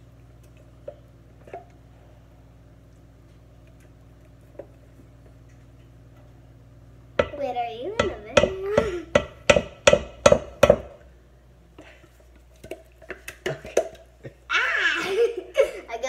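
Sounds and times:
person crying out: 14.5 - 15.4.

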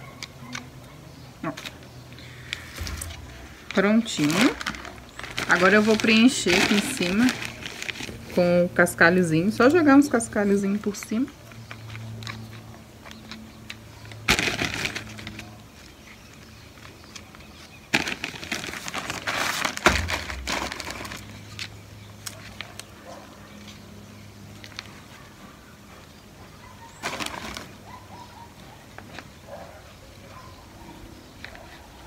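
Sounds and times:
gravel stones rattling: 1.4 - 8.3, 14.2 - 22.8
bag rustling: 2.4 - 8.4, 17.9 - 21.8
dull thump: 19.8 - 21.2.

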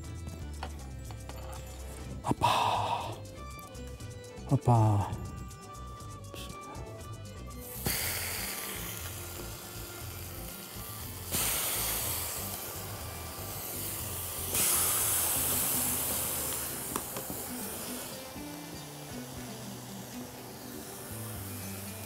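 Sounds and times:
steaks sizzling on grill pan: 6.9 - 22.0.

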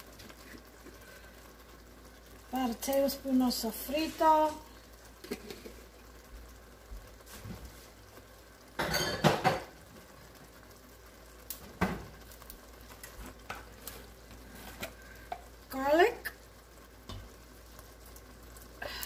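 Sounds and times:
pot simmering with bubbling: 0.0 - 19.0
pots and utensils clinking: 5.2 - 5.8, 8.8 - 9.8, 12.9 - 15.5, 17.0 - 17.3.

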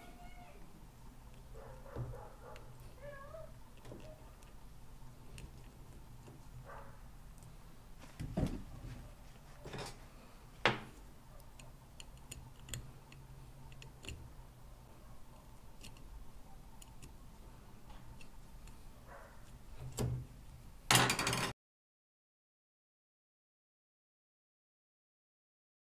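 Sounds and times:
screwdriver clicking and tapping metal: 11.6 - 14.3, 15.8 - 16.1.

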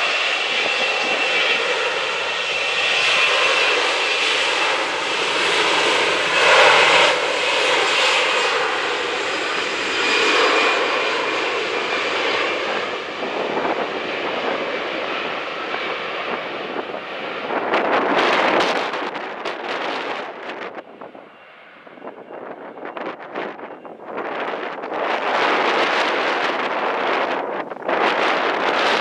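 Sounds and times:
jet engines roaring: 0.0 - 29.0
wind buffeting microphone: 0.0 - 29.0.

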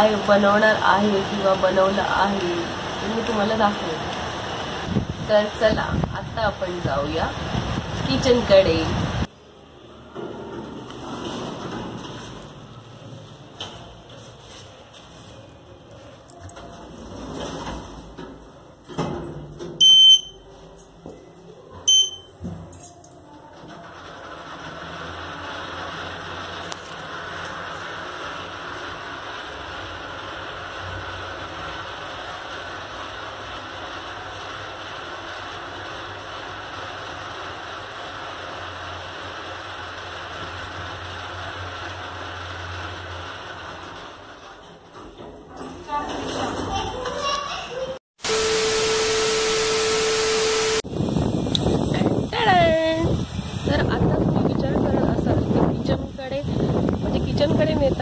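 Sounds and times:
lift travel rushing noise: 0.0 - 18.9, 23.5 - 58.0
lift button electronic beeps: 19.8 - 20.4, 21.9 - 22.4.

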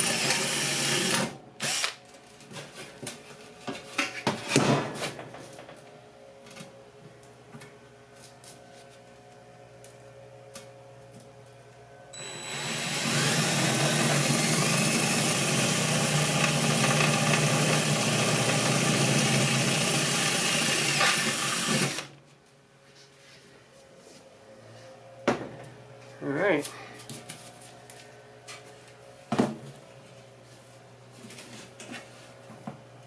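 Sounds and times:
electric drill boring through metal: 0.0 - 1.9, 12.2 - 22.1.

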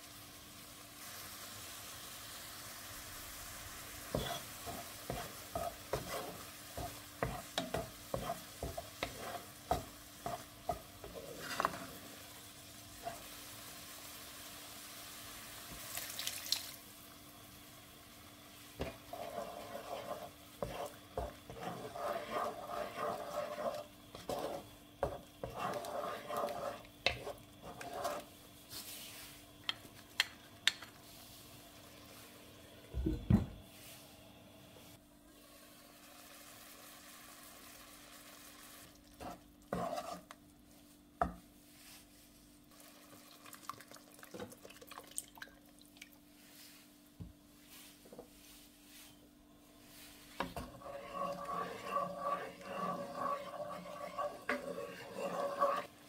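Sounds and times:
light sizzling: 0.0 - 33.0, 34.8 - 56.0
spatula scraping a frying pan: 4.0 - 12.2, 13.0 - 13.4, 18.8 - 29.2, 39.2 - 40.4, 49.8 - 56.0.

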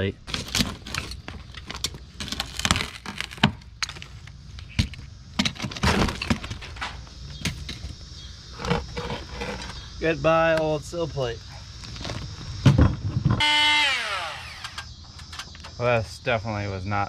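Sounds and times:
wood cracking and knocking: 0.3 - 4.1, 4.8 - 7.9.

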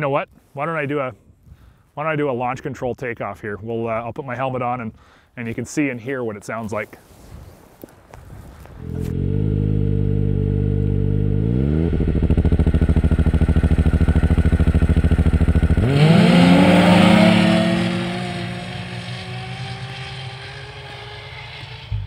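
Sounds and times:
snowmobile engine revving: 8.8 - 22.0.

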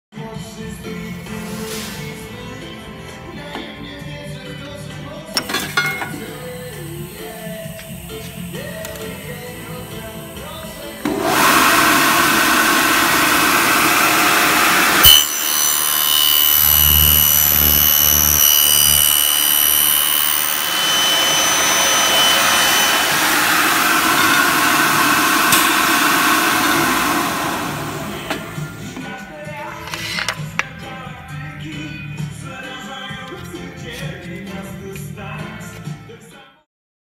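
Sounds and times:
milling machine cutting aluminium: 8.5 - 28.9.

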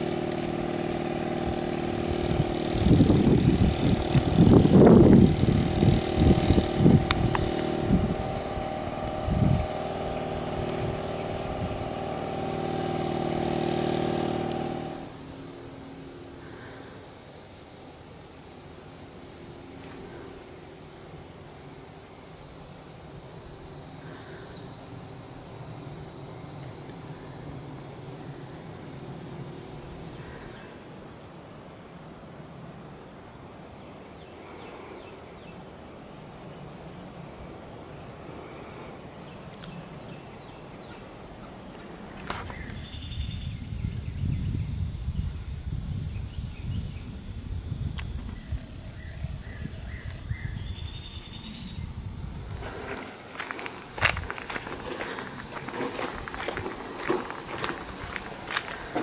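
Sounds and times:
insects calling: 0.0 - 59.0.

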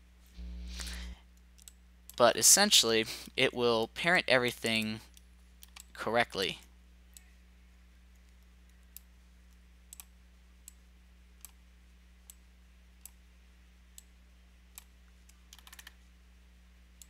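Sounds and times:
faint electrical hum: 0.0 - 17.0
computer mouse clicking: 5.1 - 5.9, 8.2 - 10.8, 11.4 - 11.6, 14.7 - 16.0.

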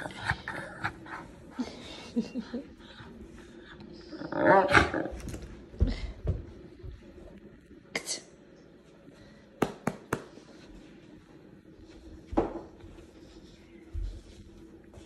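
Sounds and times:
dog growling: 4.1 - 5.3.

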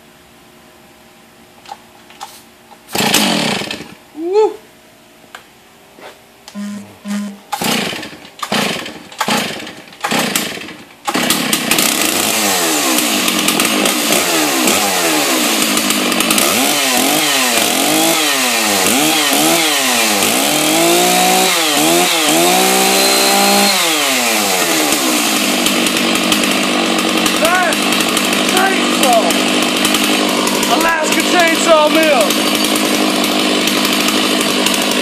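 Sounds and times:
chainsaw starting and revving: 1.7 - 4.1, 6.5 - 35.0.

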